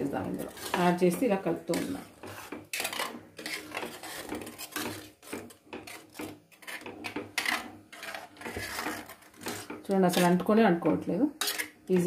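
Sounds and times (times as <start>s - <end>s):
metal spoon scraping a pan: 0.0s - 12.0s.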